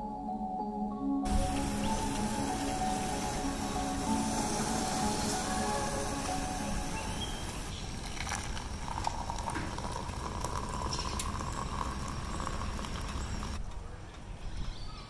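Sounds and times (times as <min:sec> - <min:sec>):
pot of water boiling: 0:01.3 - 0:13.6
water pouring into a mug: 0:01.8 - 0:13.6.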